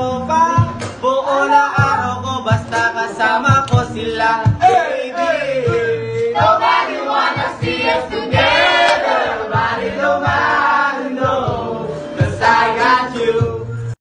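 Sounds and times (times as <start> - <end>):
pop backing track with steady beat: 0.0 - 14.0.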